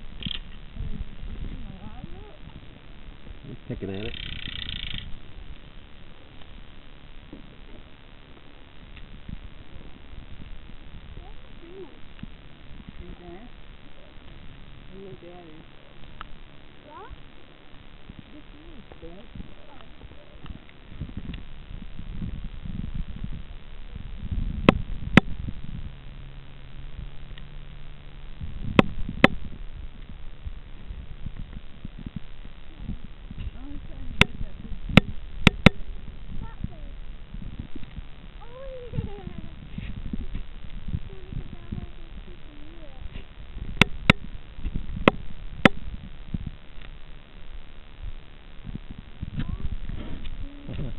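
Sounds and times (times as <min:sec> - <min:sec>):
muffled underwater rumbling: 0:00.0 - 0:50.9
steady low hum: 0:00.0 - 0:50.9
sharp clicks: 0:00.2 - 0:00.6, 0:04.0 - 0:05.2.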